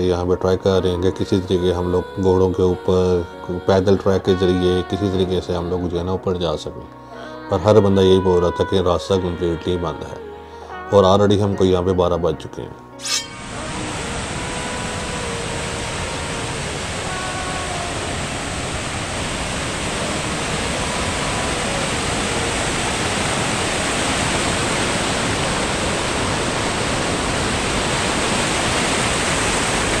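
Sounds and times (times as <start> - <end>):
river rushing over rocks: 13.0 - 30.0.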